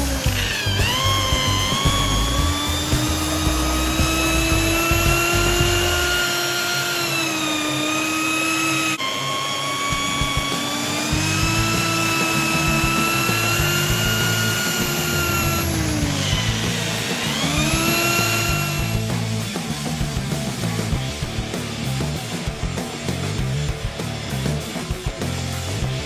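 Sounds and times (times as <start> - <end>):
electric drill whine: 0.0 - 19.5.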